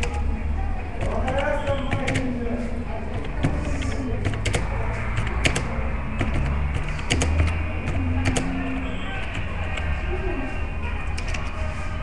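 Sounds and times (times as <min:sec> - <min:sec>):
typing on keyboard: 0:00.0 - 0:00.3, 0:00.9 - 0:02.4, 0:03.1 - 0:10.0, 0:11.1 - 0:11.6.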